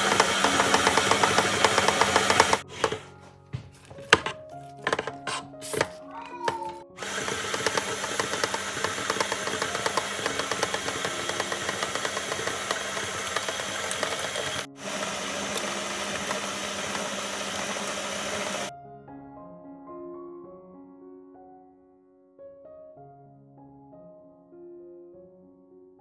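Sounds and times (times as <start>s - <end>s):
stand mixer beater slapping: 0.0s - 3.0s, 4.2s - 6.0s, 7.0s - 18.7s
soft piano music: 0.0s - 7.0s, 8.1s - 12.8s, 18.7s - 26.0s.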